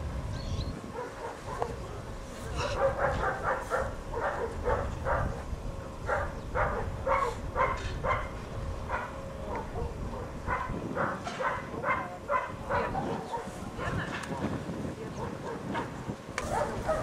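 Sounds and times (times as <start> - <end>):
dog barking in high yelps: 1.0 - 1.8, 2.6 - 5.3, 6.1 - 8.3, 8.9 - 13.5, 15.4 - 17.0.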